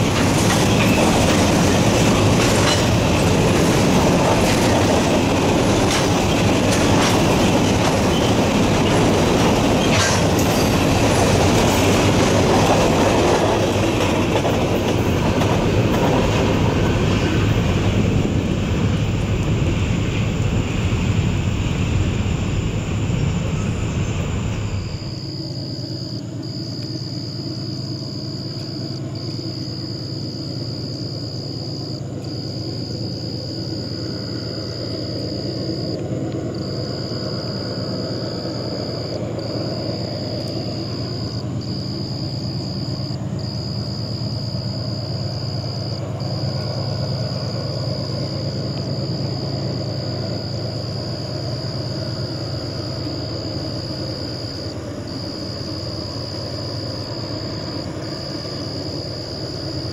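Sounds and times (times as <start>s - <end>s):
wheels clicking over rail joints: 0.0s - 20.9s
freight train rolling past: 0.0s - 59.9s.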